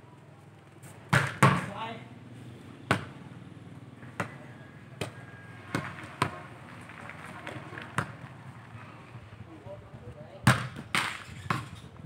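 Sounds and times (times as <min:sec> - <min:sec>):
ball thuds: 0:01.1 - 0:01.7.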